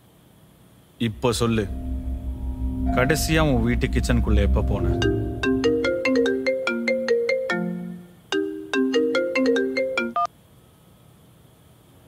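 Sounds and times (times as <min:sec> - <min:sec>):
mobile phone ringtone: 0:05.6 - 0:10.3.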